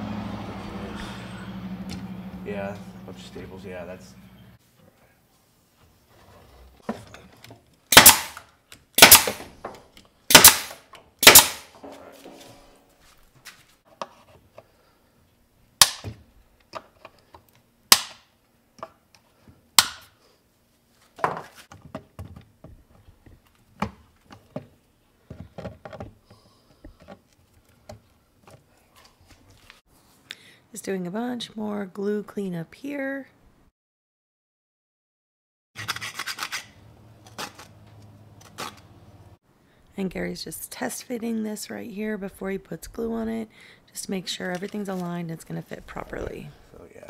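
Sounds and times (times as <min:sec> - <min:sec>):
staple gun shots: 0:07.9 - 0:08.4, 0:09.0 - 0:09.5, 0:10.3 - 0:11.7, 0:17.9 - 0:18.2.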